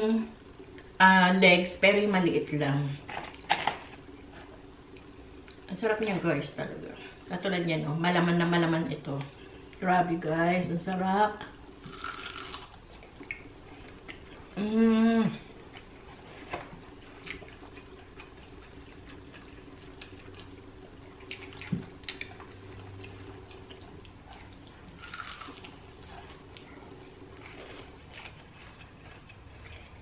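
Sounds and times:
chewing crispy food: 11.8s - 14.6s, 15.4s - 30.0s
woman humming: 14.5s - 15.5s.

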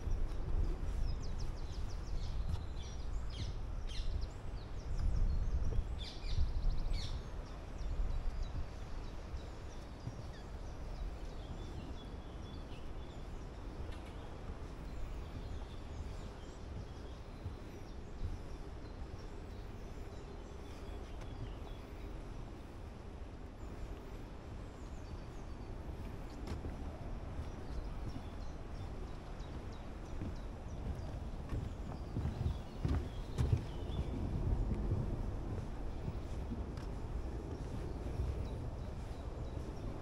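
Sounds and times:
small birds singing and chirping: 0.0s - 22.9s, 23.5s - 40.0s.

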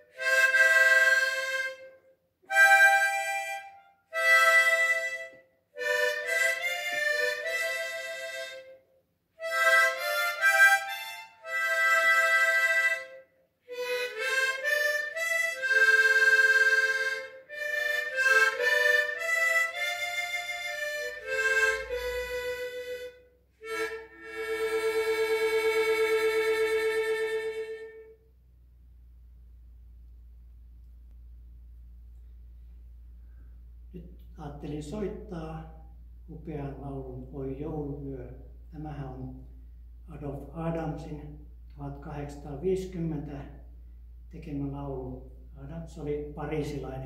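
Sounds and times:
harmonica slow melody: 0.0s - 28.3s.

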